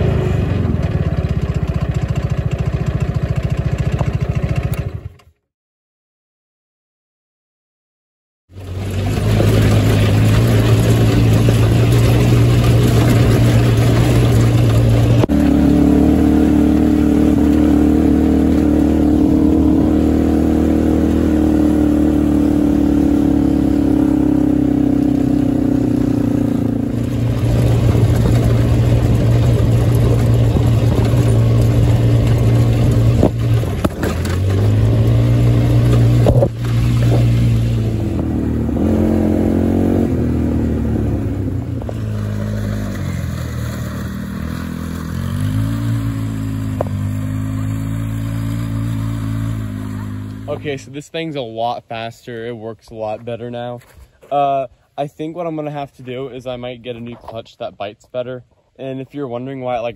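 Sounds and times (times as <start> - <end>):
go-kart engine running hard: 0.0 - 5.3, 8.5 - 50.7.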